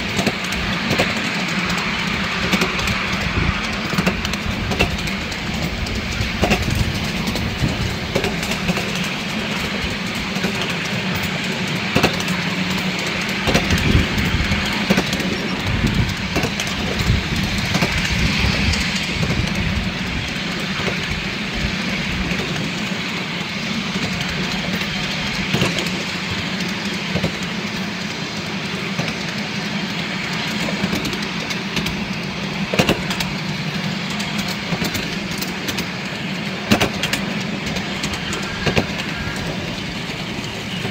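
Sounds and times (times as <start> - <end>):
wheels knocking over rail joints: 0.0 - 22.8, 36.6 - 40.9
train wheels running on rails: 0.0 - 40.9.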